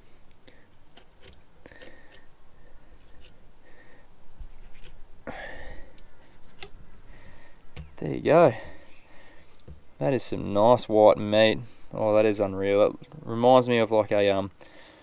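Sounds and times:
small clicks and scrapes: 0:00.3 - 0:02.3, 0:04.4 - 0:05.0
breathy rasp: 0:01.6 - 0:04.0.

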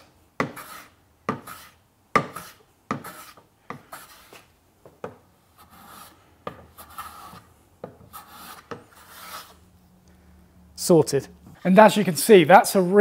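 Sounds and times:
hand plane strokes on wood: 0:00.4 - 0:04.4, 0:06.8 - 0:07.5, 0:08.1 - 0:09.6.

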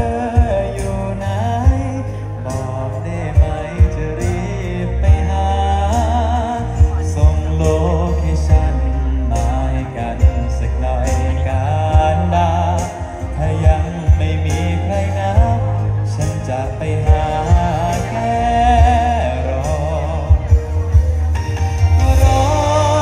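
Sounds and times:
heavy bass: 0:00.0 - 0:23.0
live band music: 0:00.0 - 0:23.0
person singing with vibrato: 0:00.0 - 0:23.0.

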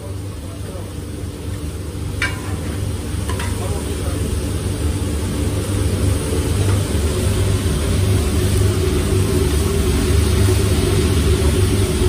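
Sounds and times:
food sizzling on a griddle: 0:00.0 - 0:12.0
metal spatula clacking on plate: 0:02.2 - 0:03.6.

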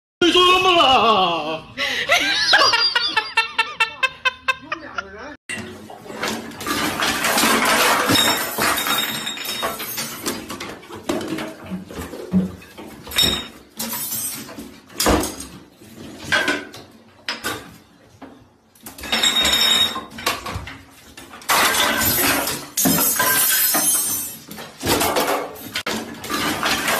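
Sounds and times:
toiletries clattering on counter: 0:05.5 - 0:26.9.

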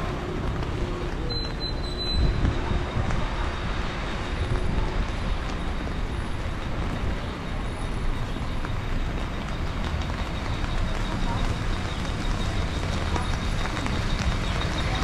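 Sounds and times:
wet traffic: 0:00.0 - 0:15.0.

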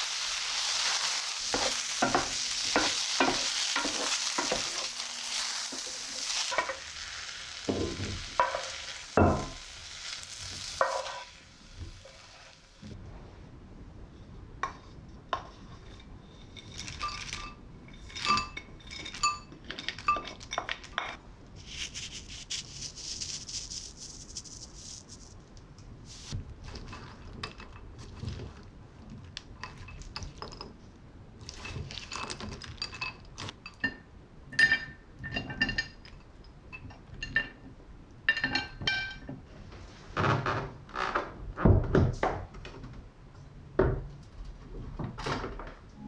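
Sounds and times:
steady hiss: 0:00.0 - 0:13.0, 0:21.5 - 0:26.4
utensils clinking against dishes: 0:00.2 - 0:07.2, 0:16.5 - 0:21.2, 0:31.5 - 0:34.0, 0:34.6 - 0:37.6, 0:38.3 - 0:39.3.

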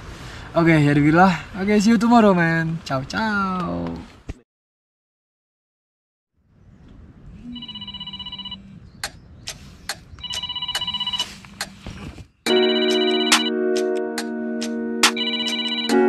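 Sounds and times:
melodic alarm ringtone: 0:07.6 - 0:08.6, 0:10.2 - 0:11.3, 0:12.5 - 0:16.0.

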